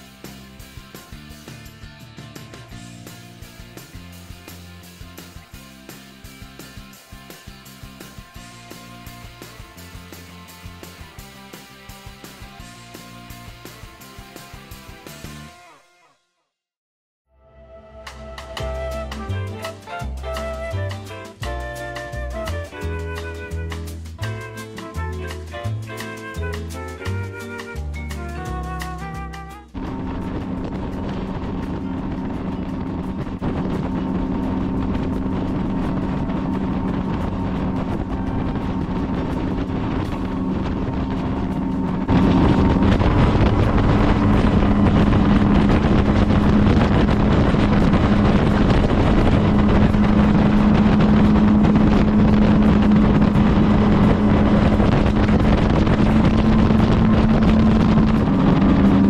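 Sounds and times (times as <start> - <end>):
wind on microphone: 28.6 - 59.0
outboard motor running: 29.0 - 59.0
rushing water: 29.8 - 59.0.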